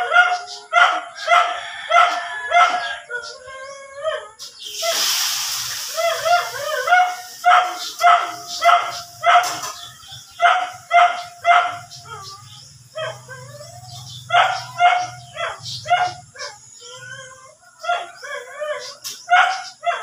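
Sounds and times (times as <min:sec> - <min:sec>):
water splashing: 0:04.7 - 0:07.7
dog yelping: 0:05.9 - 0:20.0
dog whining: 0:12.0 - 0:19.0.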